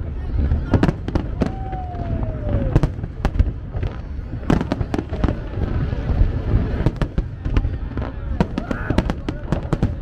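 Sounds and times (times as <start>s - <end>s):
firework bangs: 0.0s - 10.0s
descending firework whistle: 0.7s - 3.1s.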